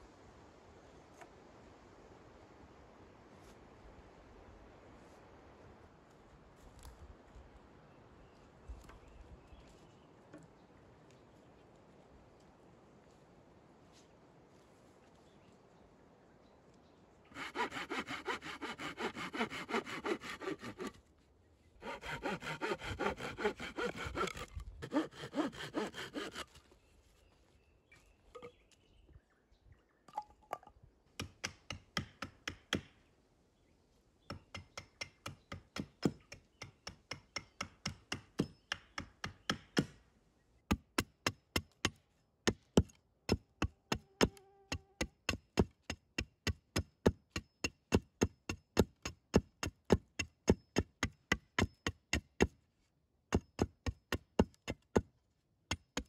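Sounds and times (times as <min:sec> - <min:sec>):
hand saw cutting wood: 0:17.3 - 0:21.0, 0:21.8 - 0:26.6
hatchet blows on log: 0:17.3 - 0:21.0, 0:21.8 - 0:26.6.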